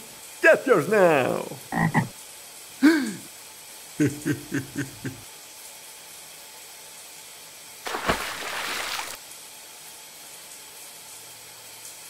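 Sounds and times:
faint hiss: 0:00.0 - 0:01.8.

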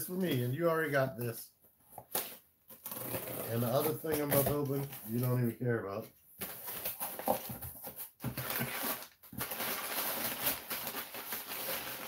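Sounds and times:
packing material crinkling: 0:06.4 - 0:12.0.

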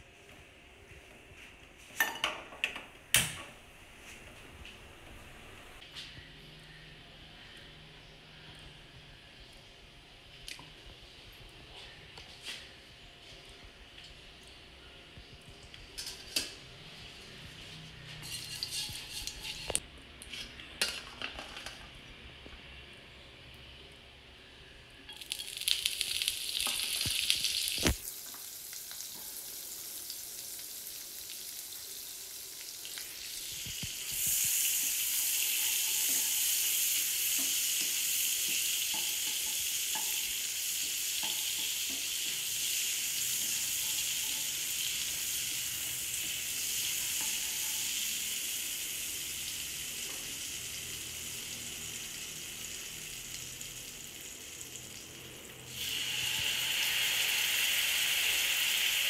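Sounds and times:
butter sizzling in a pan: 0:25.1 - 0:55.1, 0:55.7 - 0:59.0.

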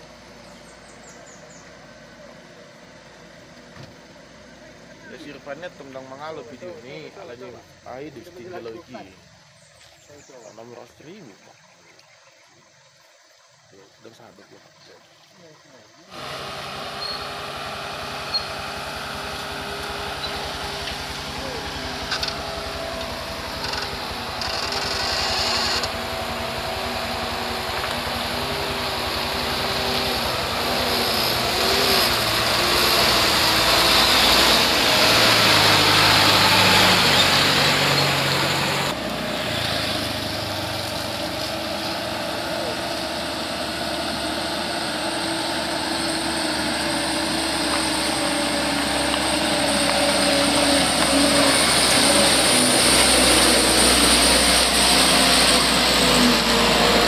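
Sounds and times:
truck engine approaching: 0:00.0 - 0:10.7, 0:16.1 - 0:57.0
truck diesel engines passing: 0:00.0 - 0:11.2, 0:16.1 - 0:57.0.

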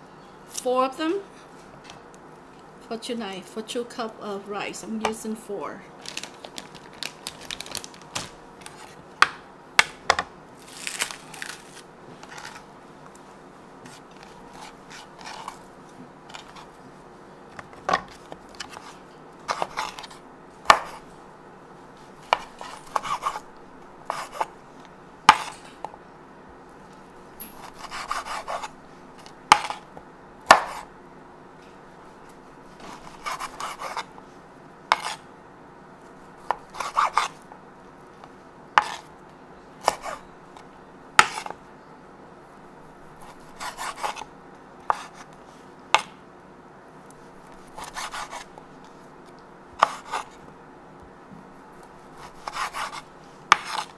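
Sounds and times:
knife scraping: 0:13.9 - 0:15.6, 0:18.1 - 0:20.2, 0:22.3 - 0:23.5, 0:24.1 - 0:24.5, 0:27.4 - 0:29.8, 0:32.7 - 0:34.1, 0:34.9 - 0:35.2, 0:36.4 - 0:37.4, 0:38.8 - 0:39.1, 0:39.8 - 0:40.3, 0:41.2 - 0:41.6, 0:43.2 - 0:45.4, 0:47.4 - 0:48.6, 0:49.8 - 0:50.4, 0:52.1 - 0:53.9.

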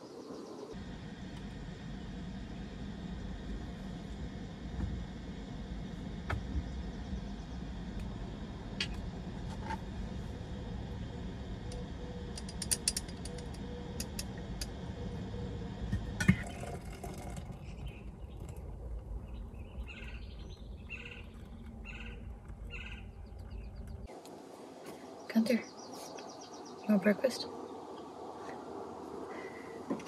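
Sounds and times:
low rumble: 0:00.7 - 0:30.0
birds chirping: 0:10.2 - 0:24.1, 0:24.8 - 0:30.0.

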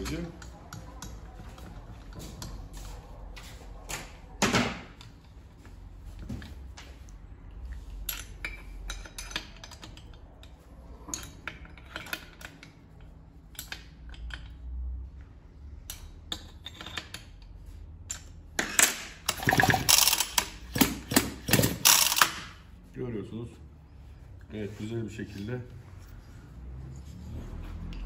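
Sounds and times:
metal engine parts clinking: 0:07.9 - 0:12.8, 0:15.9 - 0:22.6.

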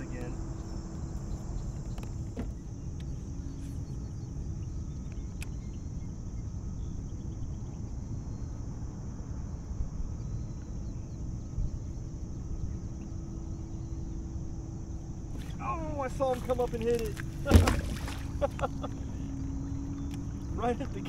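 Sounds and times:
high insect drone: 0:00.0 - 0:21.0
low outdoor rumble: 0:00.0 - 0:21.0.

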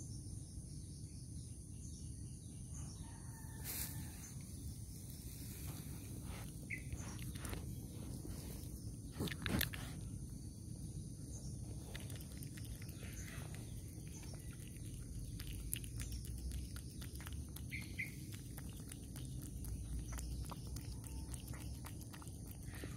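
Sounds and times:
cat chewing and licking: 0:05.8 - 0:22.9.

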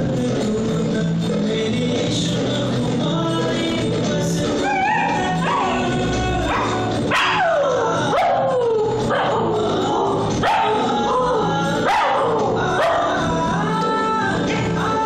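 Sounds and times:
song playing: 0:00.0 - 0:15.0
dog howling: 0:04.6 - 0:13.3.

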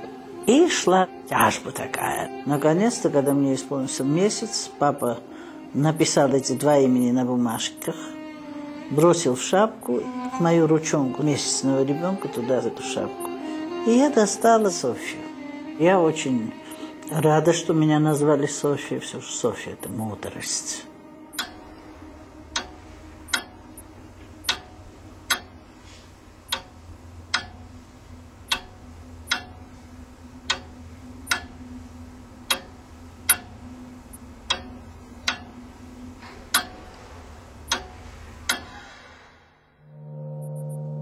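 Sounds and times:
steady low hum: 0:00.0 - 0:41.0
clock ticking: 0:00.4 - 0:03.4, 0:04.0 - 0:05.2, 0:05.8 - 0:08.0, 0:12.2 - 0:13.4, 0:14.5 - 0:14.8, 0:16.5 - 0:18.6, 0:21.3 - 0:21.7, 0:22.5 - 0:25.6, 0:26.4 - 0:38.9.

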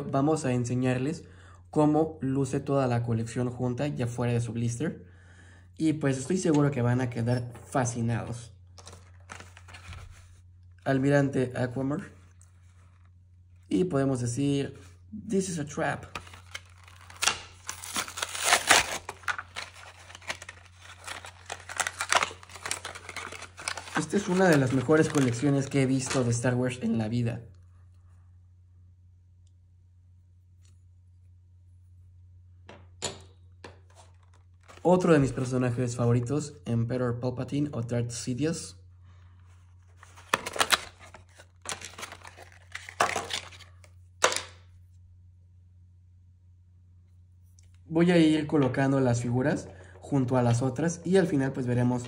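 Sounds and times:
plastic packaging crinkling: 0:08.8 - 0:10.3, 0:16.0 - 0:26.4, 0:33.9 - 0:35.1, 0:39.5 - 0:44.6.

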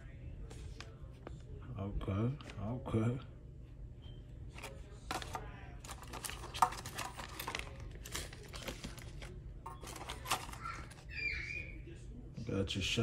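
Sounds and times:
plastic bags crinkling: 0:05.1 - 0:11.2.

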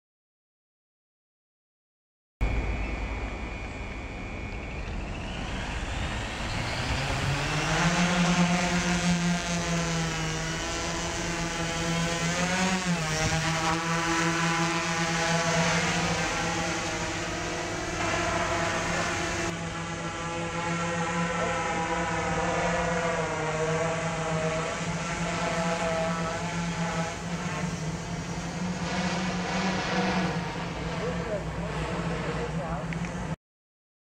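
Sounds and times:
drone motors buzzing: 0:02.4 - 0:33.4.

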